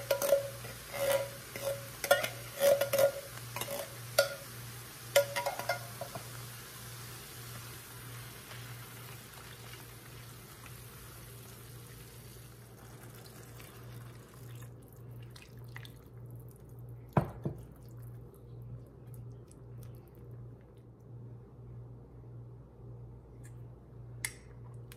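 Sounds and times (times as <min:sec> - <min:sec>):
vegetables sizzling in a pan: 0:00.0 - 0:12.8
steady low hum: 0:10.0 - 0:24.9.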